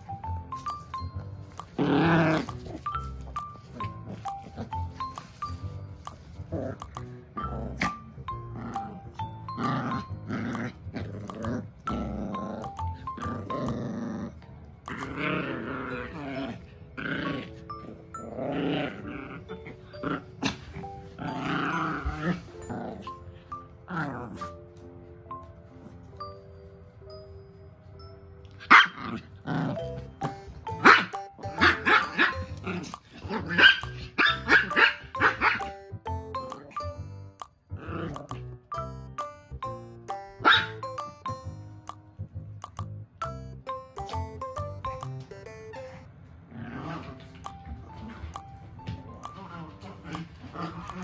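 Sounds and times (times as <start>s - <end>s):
background music: 0.0s - 51.0s
dog growling in play: 1.7s - 3.0s, 6.5s - 23.2s, 23.9s - 24.6s, 29.0s - 30.4s, 37.7s - 38.4s, 46.5s - 48.4s, 49.2s - 51.0s.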